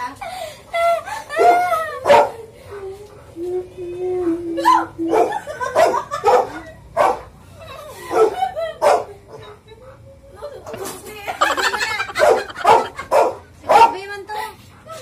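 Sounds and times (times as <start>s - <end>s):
dog barking: 2.1s - 2.4s, 5.1s - 7.3s, 8.1s - 9.1s, 12.1s - 14.0s.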